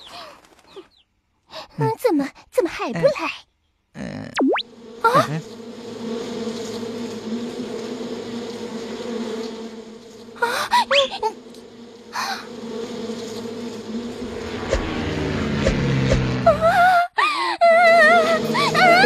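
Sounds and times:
locust swarm buzzing: 4.4 - 17.0, 17.8 - 19.0.

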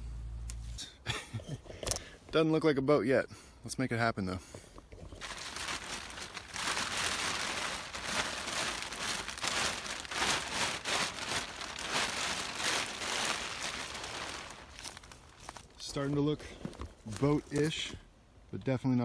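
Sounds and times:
plastic tarp rustling: 5.1 - 16.0.

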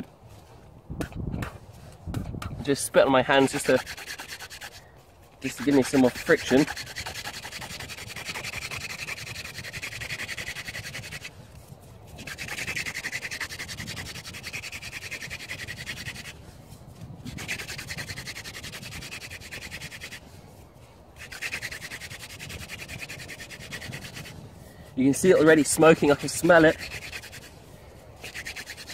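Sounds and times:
wooden spindle rubbing: 3.3 - 16.4, 17.2 - 20.2, 21.2 - 24.4, 25.1 - 27.6, 28.2 - 28.9.

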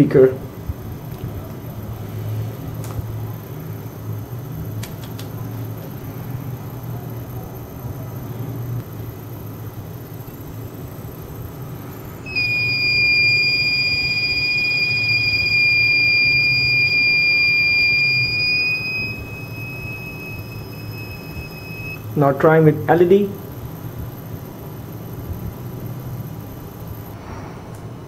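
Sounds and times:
electric motor humming: 12.3 - 22.0
high-pitched buzzer beep: 12.3 - 22.2.

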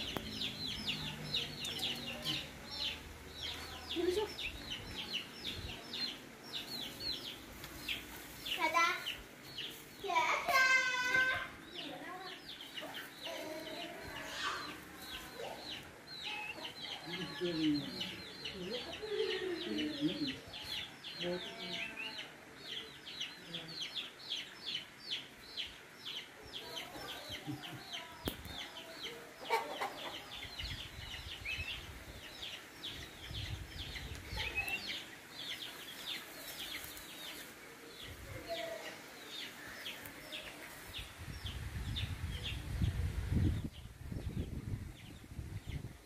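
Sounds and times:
chicks peeping: 22.1 - 45.9.

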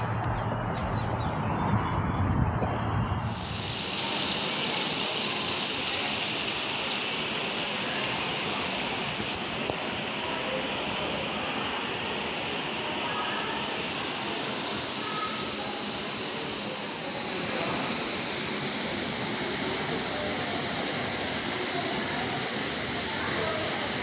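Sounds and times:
wind rumble on microphone: 0.0 - 3.9
water running over rocks: 3.4 - 24.0.

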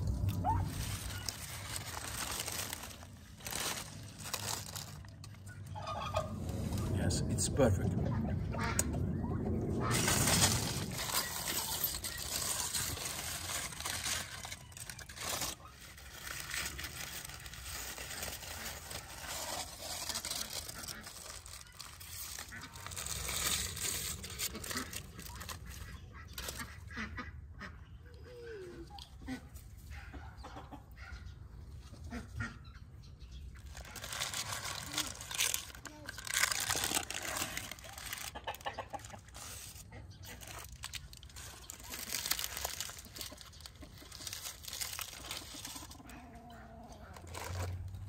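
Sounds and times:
foil and paper crinkling: 0.0 - 5.7, 9.8 - 26.8, 33.6 - 46.2, 47.0 - 48.0.

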